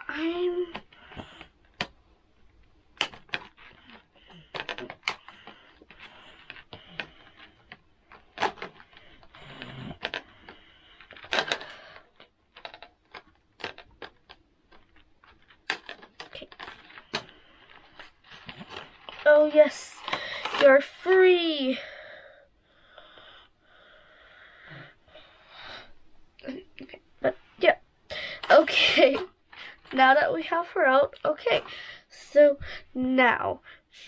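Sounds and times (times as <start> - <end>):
plastic rustling: 0.1 - 21.3, 26.8 - 31.9.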